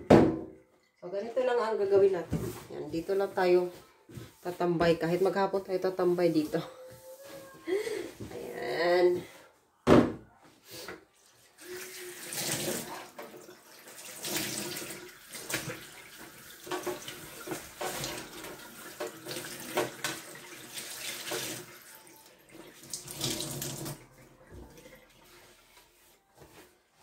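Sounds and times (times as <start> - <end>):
tap water running into sink: 11.6 - 25.2.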